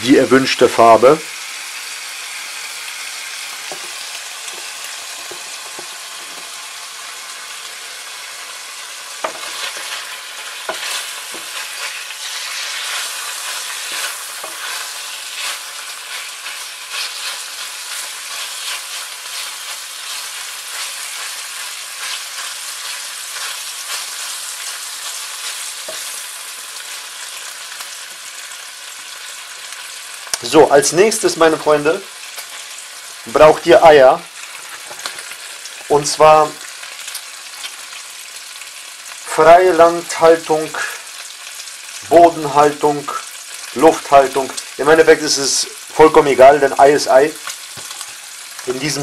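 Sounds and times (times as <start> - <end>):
bacon sizzling in a frying pan: 0.0 - 49.0
wooden spatula scraping a pan: 9.2 - 26.2, 34.5 - 35.5.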